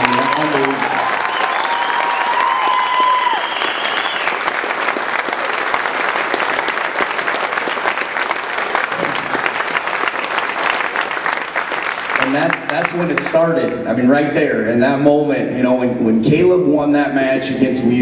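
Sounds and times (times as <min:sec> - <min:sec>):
people cheering: 0:00.0 - 0:13.3
crowd applauding: 0:00.0 - 0:13.6.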